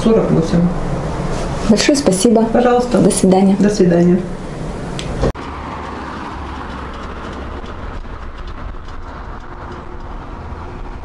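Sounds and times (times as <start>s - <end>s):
tyre and road rumble: 0.0s - 11.0s.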